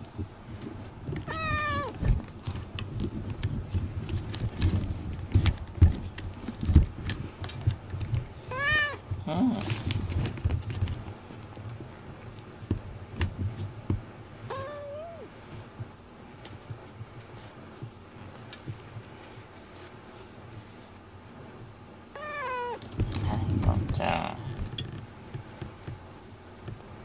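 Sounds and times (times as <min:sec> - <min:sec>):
soft rustling and bumps: 0:00.1 - 0:14.8, 0:15.4 - 0:21.8, 0:22.8 - 0:27.0
cat meowing: 0:01.2 - 0:02.0, 0:08.5 - 0:09.0, 0:14.5 - 0:15.3, 0:22.1 - 0:22.8.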